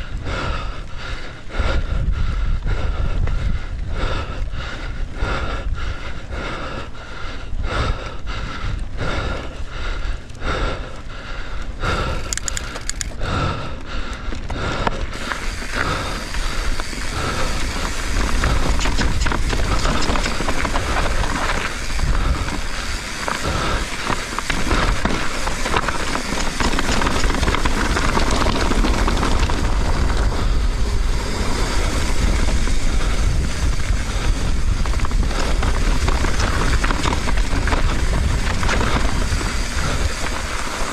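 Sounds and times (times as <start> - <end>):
bike tyres over dirt and rock: 0.0 - 40.9
wind on microphone: 1.5 - 6.5, 15.2 - 40.9
bike rattling: 2.2 - 40.9
heavy rumble: 11.8 - 40.9.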